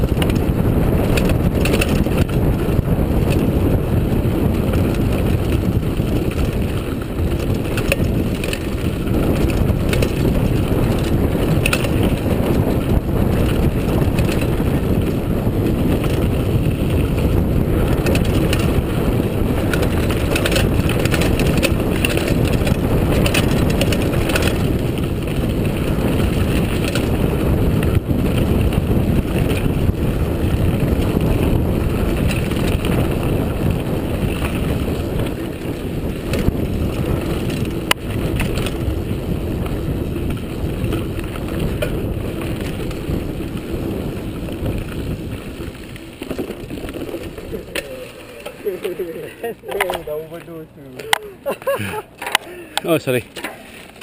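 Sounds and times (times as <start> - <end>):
bike clicks and rattles: 0.0 - 54.0
tyres rumbling on dirt: 0.0 - 54.0
wind buffeting microphone: 0.0 - 54.0.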